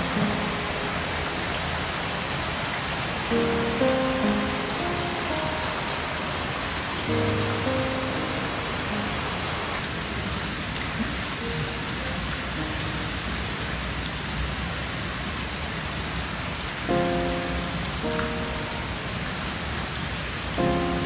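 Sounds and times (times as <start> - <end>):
soft musical chord: 0.0 - 2.1, 3.2 - 9.9, 16.9 - 21.0
steady hiss: 0.0 - 13.8, 16.8 - 21.0.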